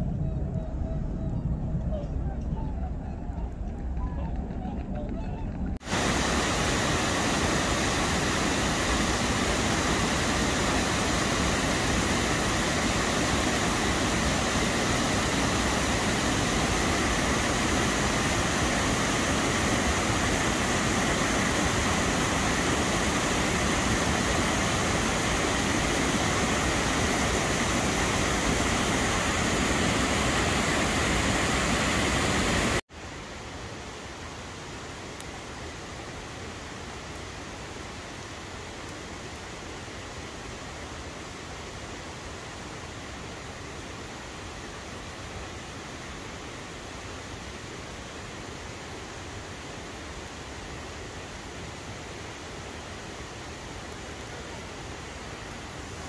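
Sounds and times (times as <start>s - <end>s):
stream rushing over rocks: 5.8s - 56.0s.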